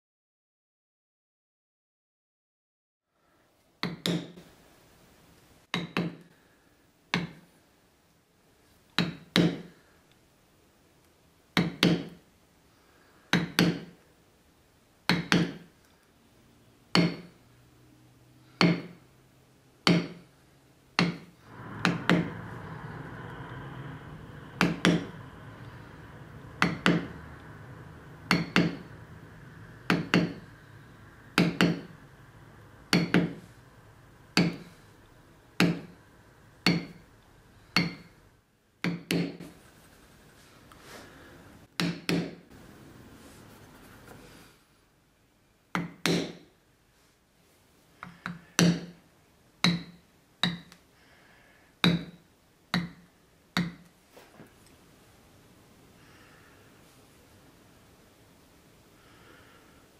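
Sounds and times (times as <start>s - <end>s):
faint steady hum: 3.1s - 59.9s
mallet knocking on stamping tool: 28.3s - 28.9s, 29.9s - 30.5s, 31.4s - 32.0s, 32.9s - 33.4s, 34.4s - 34.7s, 35.6s - 36.0s, 36.6s - 37.0s, 37.8s - 38.1s, 51.8s - 52.2s.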